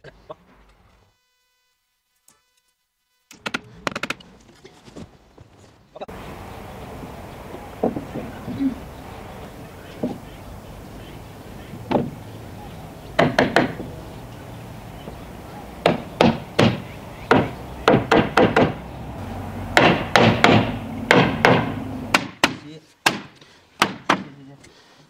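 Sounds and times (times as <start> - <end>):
hammer knocking on wood: 7.5 - 8.8, 9.9 - 10.3, 11.7 - 12.2, 13.2 - 14.0, 15.8 - 18.8, 19.8 - 24.3.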